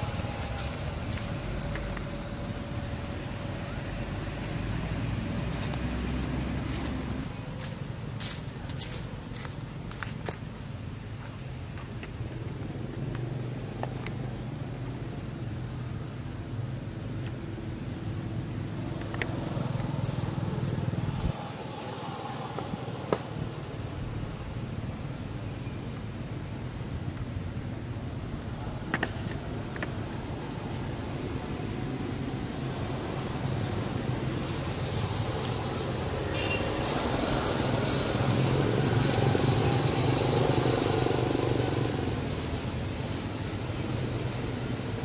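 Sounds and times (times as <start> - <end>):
vehicle engine rumbling: 0.0 - 25.5.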